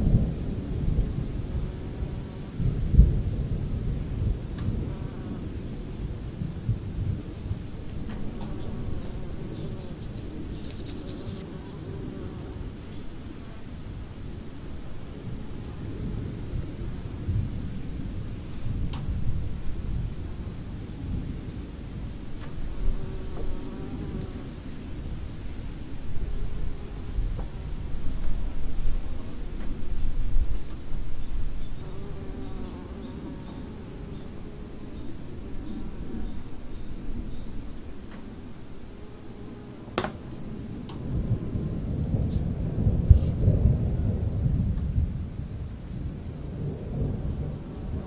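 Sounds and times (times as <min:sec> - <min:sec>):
high-pitched insect chirring: 0:08.3 - 0:11.6.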